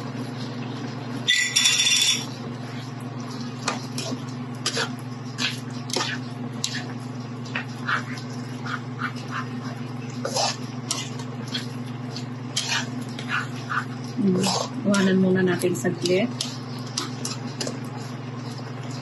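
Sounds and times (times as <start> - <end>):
steady low hum: 0.0 - 19.0
spatula scraping wok: 10.2 - 11.7, 12.5 - 14.8.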